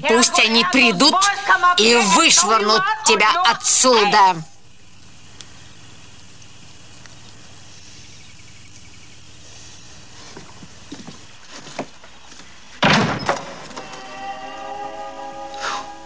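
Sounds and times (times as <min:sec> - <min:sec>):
faint clicks: 0:04.9 - 0:05.6
door slamming shut: 0:12.8 - 0:13.9.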